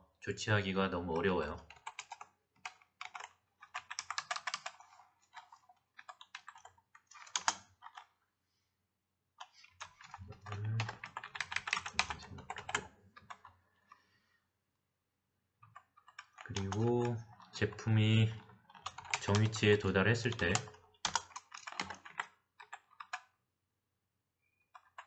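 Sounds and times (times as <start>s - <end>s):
typing on computer keyboard: 1.6s - 8.2s, 9.4s - 13.6s, 15.6s - 23.4s, 24.6s - 25.0s.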